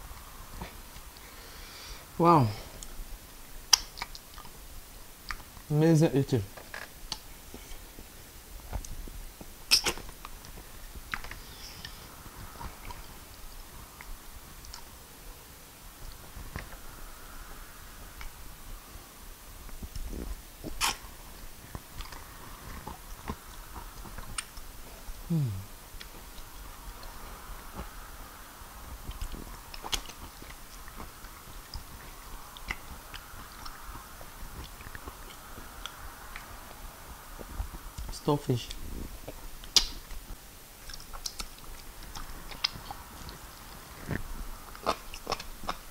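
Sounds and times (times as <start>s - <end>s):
person chewing soft food: 0.0s - 5.7s, 6.6s - 45.9s
wet mouth clicks and smacks: 3.7s - 4.6s, 29.1s - 33.9s, 39.3s - 40.2s, 40.8s - 43.4s.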